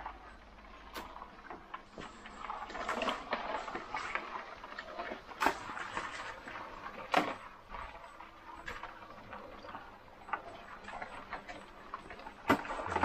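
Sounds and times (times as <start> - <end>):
water sloshing: 2.0 - 13.0.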